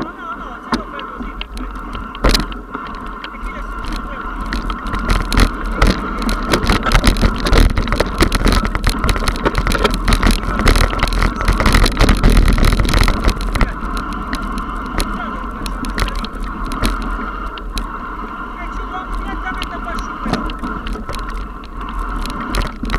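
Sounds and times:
mountain bike clattering on rocks: 0.0 - 15.0.

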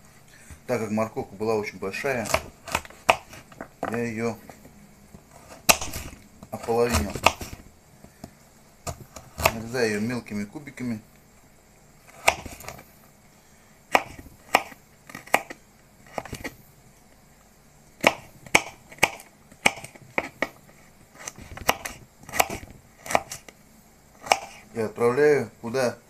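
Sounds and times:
knife dicing on plastic board: 2.2 - 4.0, 5.4 - 7.6, 12.1 - 12.8, 13.9 - 16.6, 18.0 - 23.5, 24.2 - 24.6.

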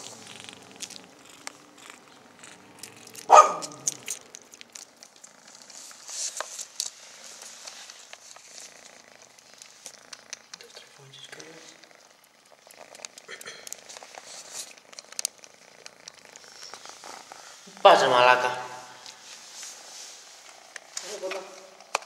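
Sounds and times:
kitten sucking clicks: 0.0 - 5.4, 8.1 - 10.7, 11.8 - 17.3
kitten purring: 0.0 - 22.0.

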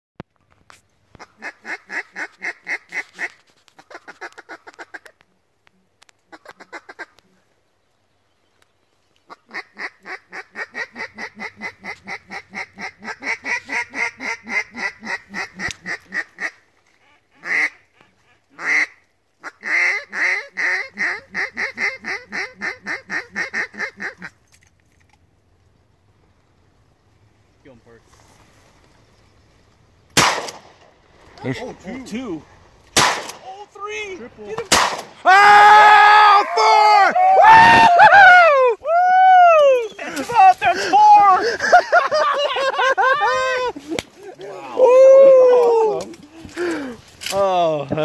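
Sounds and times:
duck call quacking: 1.2 - 5.1, 9.3 - 24.4.

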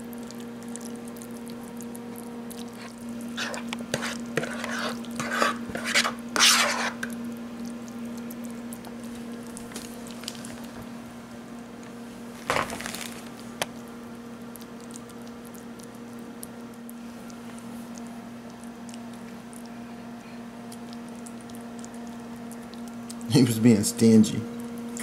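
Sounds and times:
fork scraping and clicking: 2.8 - 7.2.

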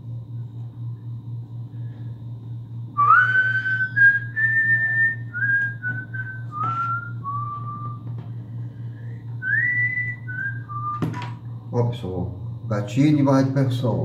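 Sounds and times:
low hum: 0.0 - 14.0
person whistling a slow tune: 3.0 - 8.2, 8.9 - 11.2.

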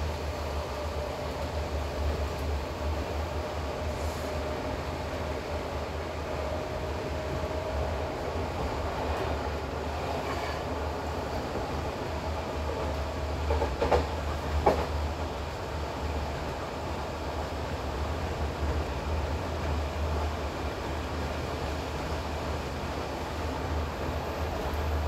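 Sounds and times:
train rumble and rail noise: 0.0 - 25.0
wheels clacking over rail joints: 12.8 - 15.0.

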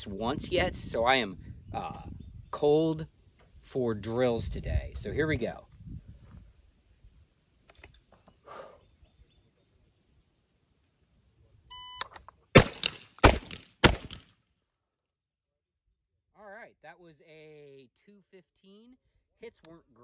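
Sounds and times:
shotgun shots: 12.6 - 14.3.

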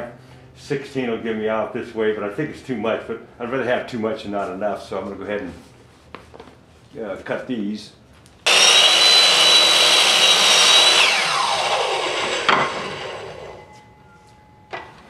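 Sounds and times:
saw cutting wooden board: 8.5 - 13.6
miter saw whining: 8.5 - 13.8.

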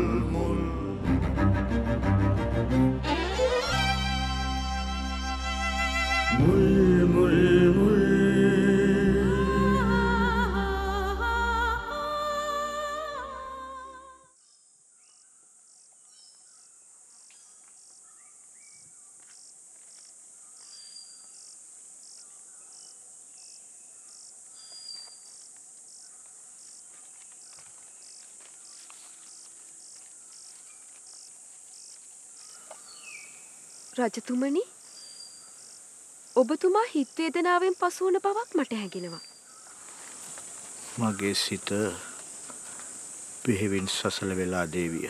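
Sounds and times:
background music with singing: 0.0 - 3.0, 6.2 - 13.8
insects trilling: 8.4 - 45.0.

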